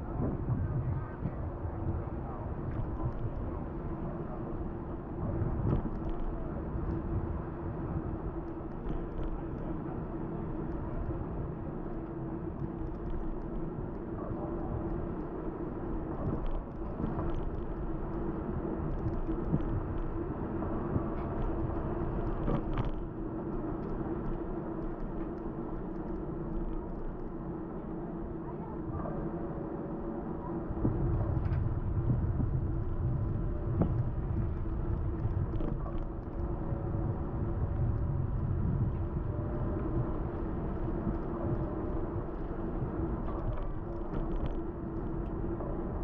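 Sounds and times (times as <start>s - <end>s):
road and wind rumble: 0.0s - 46.0s
microphone clicks and crackles: 5.5s - 7.2s, 18.9s - 20.2s, 20.8s - 27.3s, 30.7s - 45.4s
low hum: 10.6s - 46.0s.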